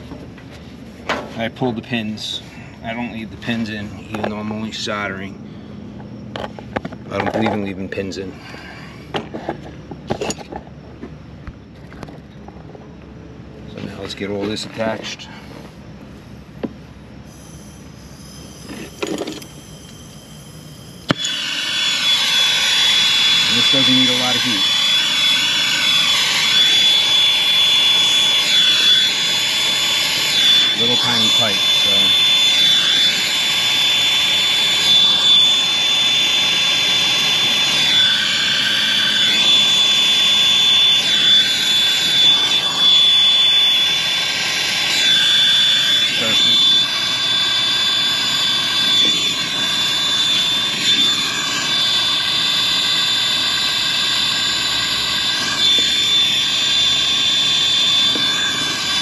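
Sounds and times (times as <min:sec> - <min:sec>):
thin high whistle: 0:17.2 - 0:59.0
torch flame hissing: 0:17.3 - 0:59.0.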